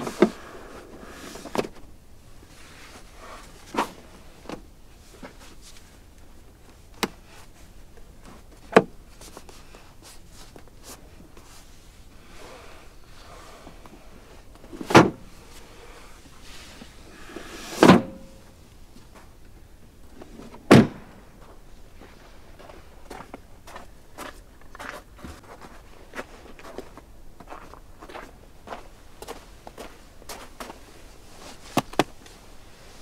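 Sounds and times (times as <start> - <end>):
car doors shutting: 17.4 - 18.4.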